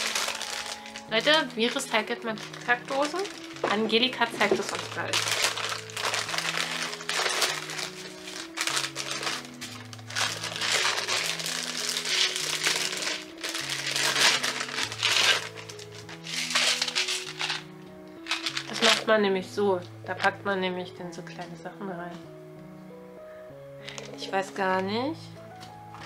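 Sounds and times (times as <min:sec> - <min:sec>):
packaging crinkling: 0:00.0 - 0:19.1
music of slow held chords: 0:00.0 - 0:26.0.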